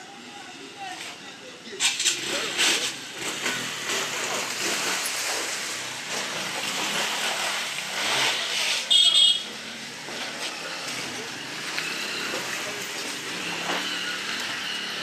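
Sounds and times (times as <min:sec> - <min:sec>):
motorcycle engines: 0:00.0 - 0:15.0
tyres through puddles: 0:00.9 - 0:15.0
shrill horn: 0:08.8 - 0:09.6.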